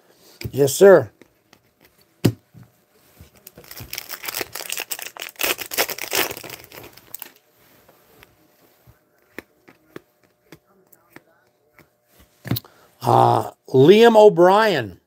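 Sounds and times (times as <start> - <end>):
foil wrapper crackling: 3.4 - 7.4.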